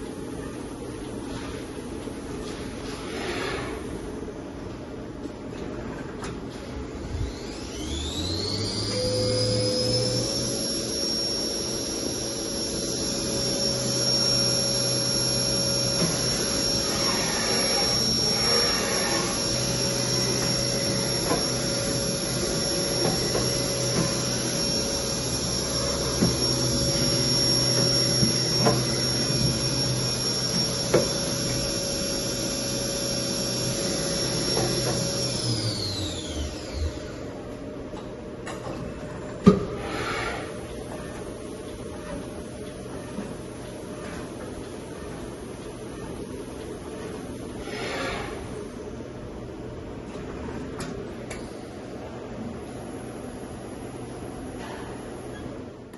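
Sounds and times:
machine spindle whining: 7.1 - 37.5.

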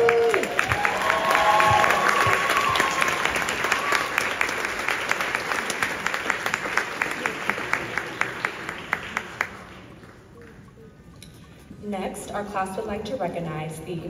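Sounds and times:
audience applause: 0.0 - 10.6.

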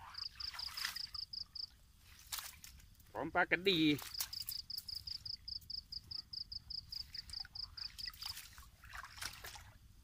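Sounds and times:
insect chirping: 0.0 - 10.0
fish trap rustling and splashing: 2.0 - 3.1, 3.7 - 5.3, 6.9 - 9.8.

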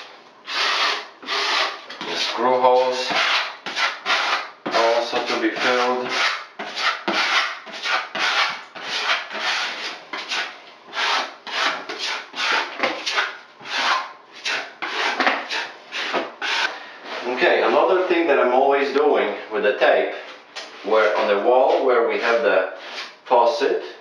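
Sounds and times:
applicator scraping on wall: 0.5 - 18.2.

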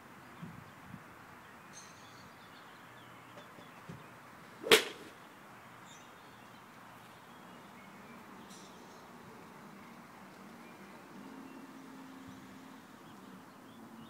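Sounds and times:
golf club striking ball: 4.6 - 5.2.

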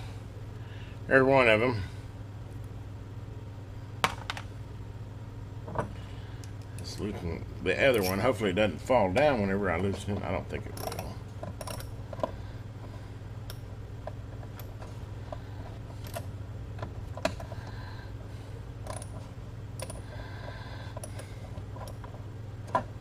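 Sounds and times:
steady low hum: 0.0 - 23.0
socket wrench clicking: 10.8 - 11.9, 19.8 - 20.0.

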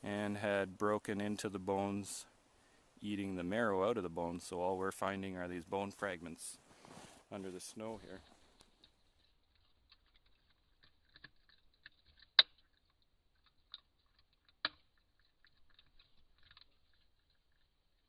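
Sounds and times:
small crunching clicks: 6.2 - 18.0
animal chewing and biting: 8.4 - 18.0.

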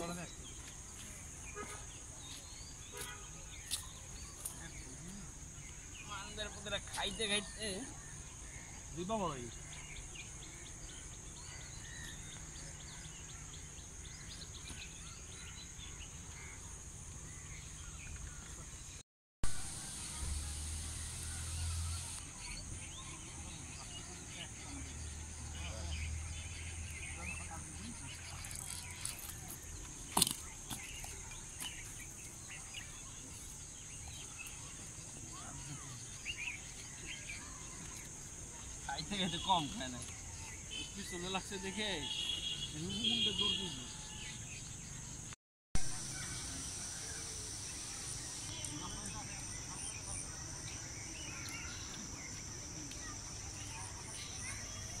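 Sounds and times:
birds chirping: 0.0 - 19.0, 19.6 - 55.0
insect chorus: 0.0 - 45.2, 45.8 - 55.0
high insect drone: 19.6 - 26.8, 45.9 - 55.0.

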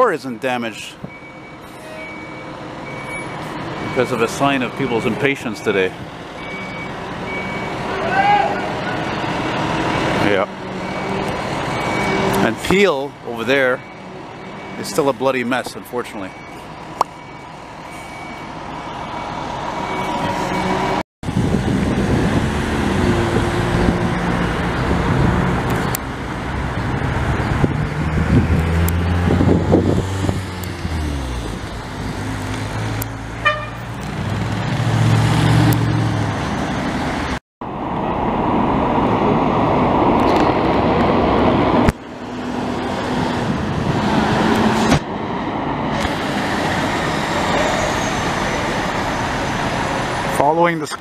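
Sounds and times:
fire truck diesel engines passing: 0.0 - 51.0
short horn toot: 33.4 - 33.9.

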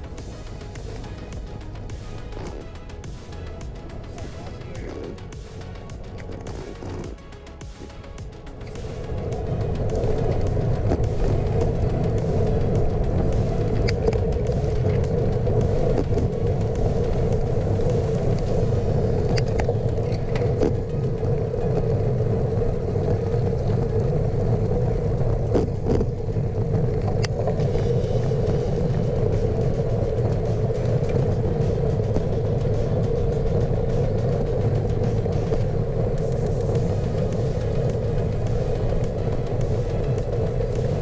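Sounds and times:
bicycle road rumble: 0.0 - 41.0
constant hum: 0.0 - 41.0
wind: 0.0 - 41.0
faint ticks from bumps: 0.8 - 18.6.

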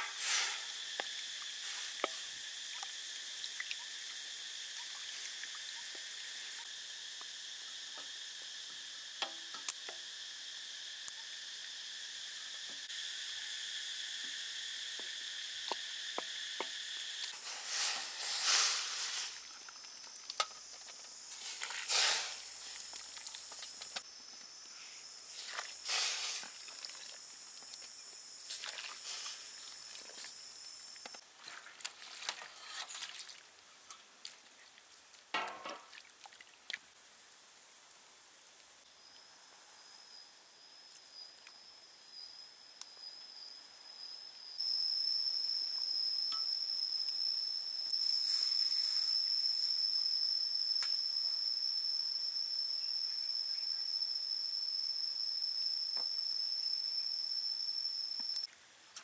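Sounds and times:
insects chirring: 0.0 - 59.0
food simmering in a wok: 0.1 - 17.2.

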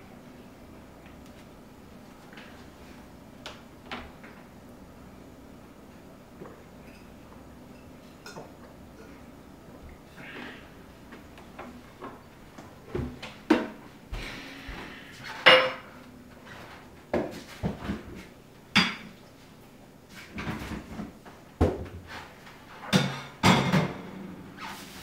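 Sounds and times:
dishes and cutlery clinking: 15.3 - 15.9.

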